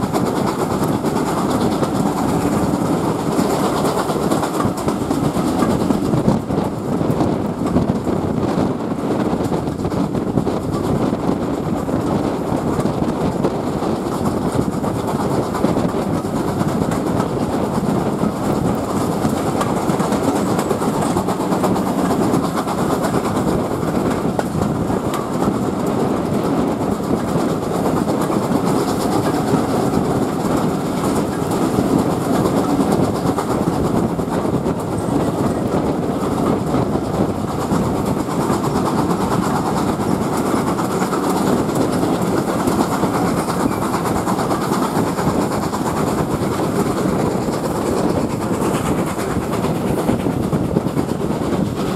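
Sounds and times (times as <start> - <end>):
train wheels clattering on track: 0.0 - 51.9.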